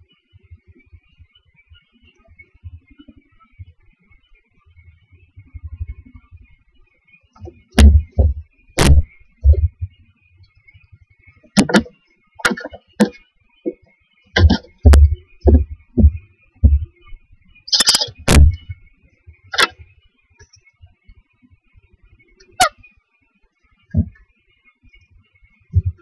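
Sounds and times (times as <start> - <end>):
owlets knocking in wooden nest box: 7.4 - 9.9, 11.5 - 13.8, 14.4 - 16.9, 17.7 - 18.8, 19.6 - 19.8, 24.0 - 24.2, 25.8 - 26.0.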